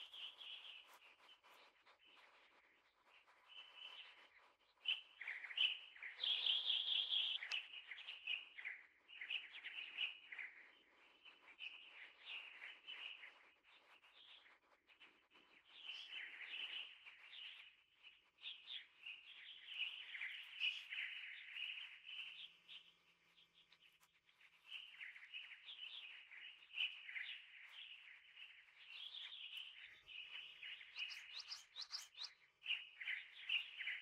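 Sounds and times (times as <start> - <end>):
small birds chirping: 0.0 - 34.0.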